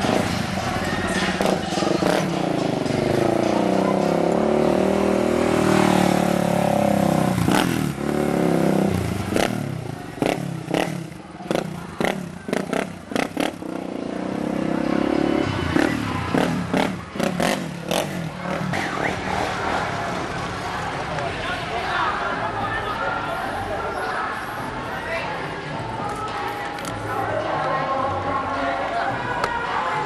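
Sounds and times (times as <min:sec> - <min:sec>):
engine revving: 0:01.2 - 0:20.0.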